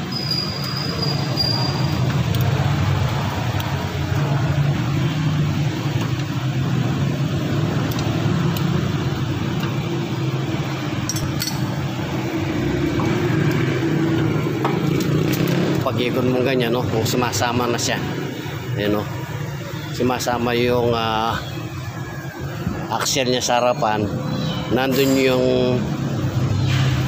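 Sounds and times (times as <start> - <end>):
metallic wrench clinks: 11.0 - 11.9.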